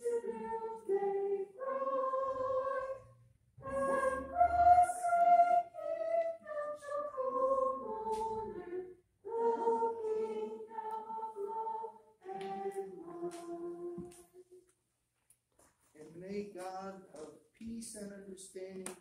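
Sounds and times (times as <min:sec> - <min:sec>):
congregation singing a hymn: 0:00.0 - 0:14.4.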